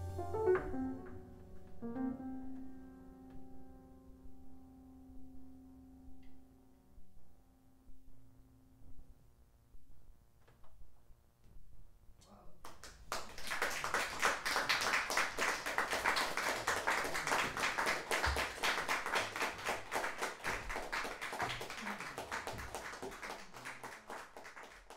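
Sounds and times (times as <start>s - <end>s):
audience applauding: 12.6s - 24.9s.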